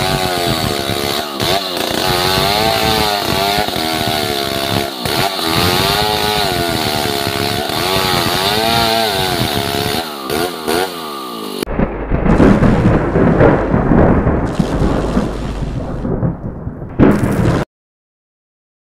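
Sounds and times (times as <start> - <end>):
chainsaw cutting log: 0.0 - 11.7
rumbling thunder-like sound effect: 11.7 - 17.7.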